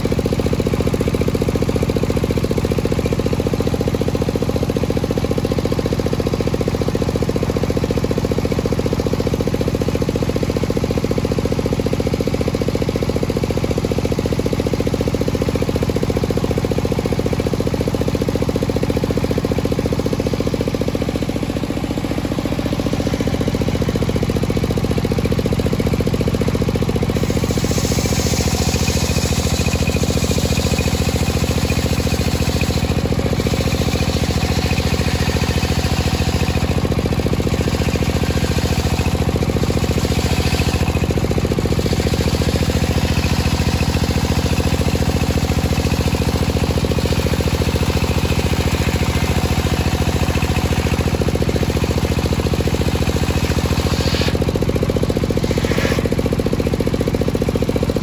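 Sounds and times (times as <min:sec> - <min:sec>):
table saw engine running: 0:00.0 - 0:58.0
saw blade hissing through wood: 0:27.2 - 0:36.6, 0:53.0 - 0:56.8.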